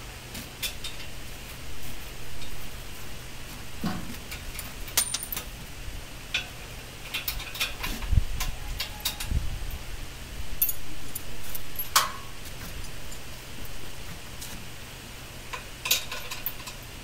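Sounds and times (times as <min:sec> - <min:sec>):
metallic clinks of tools: 0:04.9 - 0:05.5, 0:10.6 - 0:10.9.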